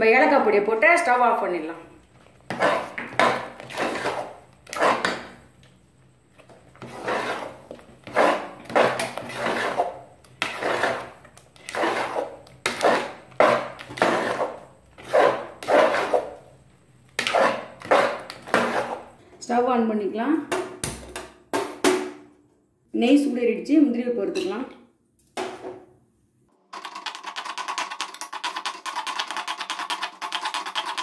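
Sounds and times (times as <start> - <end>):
spatula scraping a pot: 2.4 - 5.4, 6.7 - 16.5, 17.2 - 19.2, 27.4 - 31.0.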